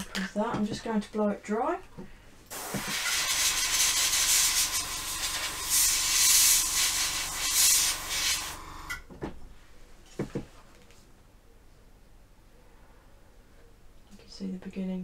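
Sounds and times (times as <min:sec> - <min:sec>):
hair dryer blowing: 0:02.5 - 0:09.0.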